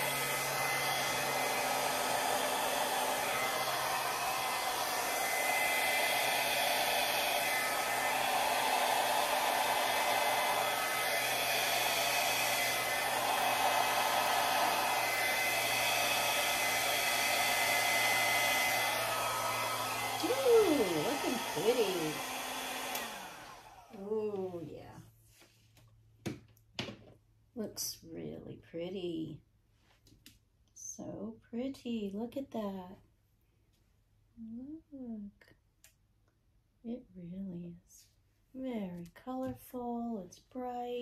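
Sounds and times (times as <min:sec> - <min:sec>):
blow dryer running: 0:00.0 - 0:24.7.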